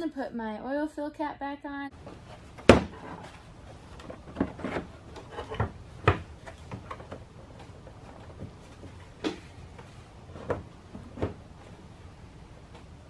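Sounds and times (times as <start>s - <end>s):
hollow plastic knocks: 4.0s - 9.5s.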